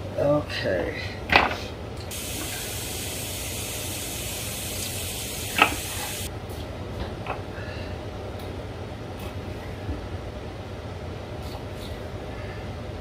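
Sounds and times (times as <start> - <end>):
steady hiss: 2.1 - 6.3.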